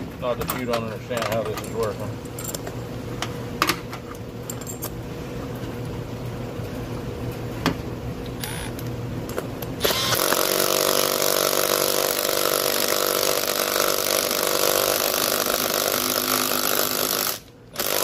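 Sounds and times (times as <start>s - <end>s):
impact wrench hammering on bolt: 9.9s - 18.0s.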